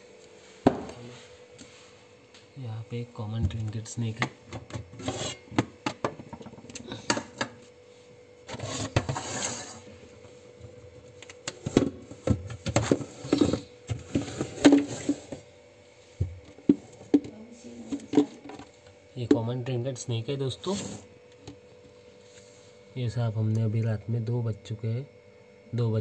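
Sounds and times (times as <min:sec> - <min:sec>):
faint steady hum: 0:00.0 - 0:26.0
pots and containers clanking: 0:04.2 - 0:07.6, 0:08.5 - 0:09.9, 0:11.4 - 0:15.5
scraping rustle: 0:08.5 - 0:09.9.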